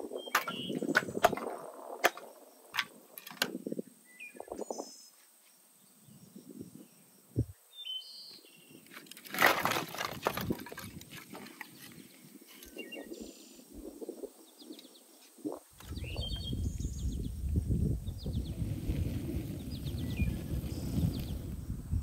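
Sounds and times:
birds chirping: 0.0 - 5.2, 11.3 - 21.6
wood sticks rattling: 0.1 - 3.6, 8.9 - 11.7.

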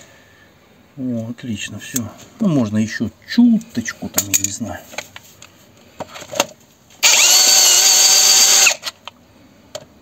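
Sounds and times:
cordless drill drilling into metal: 7.0 - 8.9.

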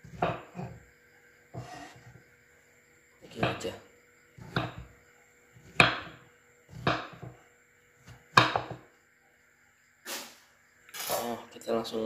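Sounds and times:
knife chopping on wooden board: 0.0 - 0.8, 1.5 - 2.2, 4.4 - 5.0, 5.6 - 7.4, 8.0 - 8.8.

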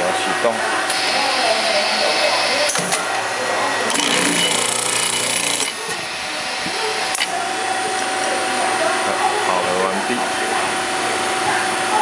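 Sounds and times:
motor humming: 0.8 - 9.4
riveting head spinning: 3.9 - 7.2.

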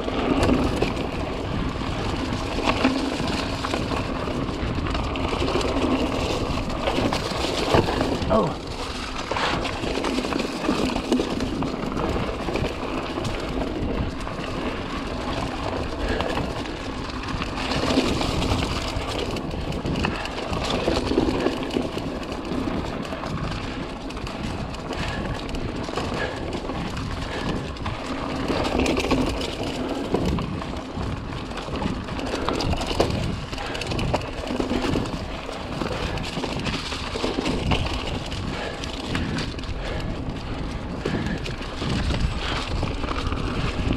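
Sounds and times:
bike knocking and rattling: 0.0 - 43.9
bike tyres on dirt trail: 0.0 - 43.9
wind rumbling on microphone: 0.0 - 43.9.

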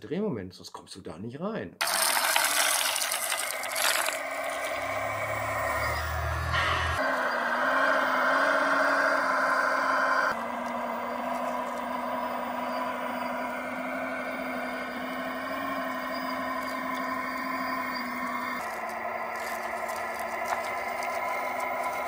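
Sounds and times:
bucket pushing into soil: 1.8 - 4.7
model loader drive train hum: 1.8 - 22.0.

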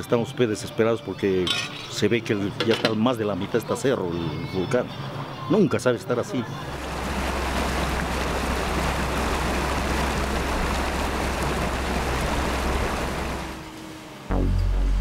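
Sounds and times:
low water rumble: 6.6 - 15.0
stream rushing over rocks: 6.7 - 13.6.

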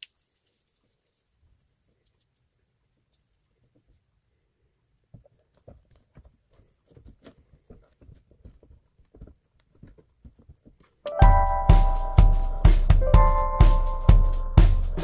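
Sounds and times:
loud music with piano and drums: 11.1 - 15.0.

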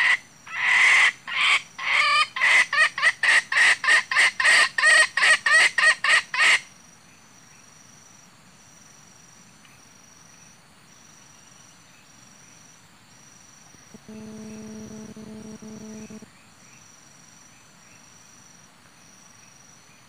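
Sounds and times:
junglefowl clucking from a caller: 0.0 - 6.6
faint high insect trill: 0.0 - 20.0.

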